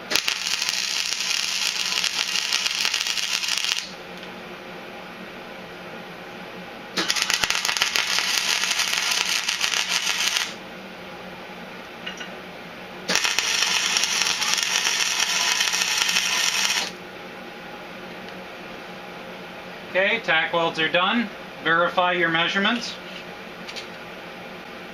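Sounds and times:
arc welding crackling: 0.0 - 4.3, 7.0 - 10.6, 13.1 - 17.0.

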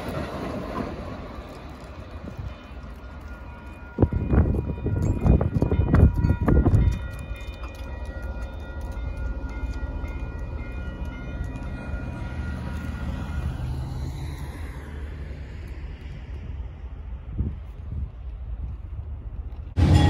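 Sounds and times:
crossing bell ringing: 2.2 - 14.4, 19.8 - 20.0.

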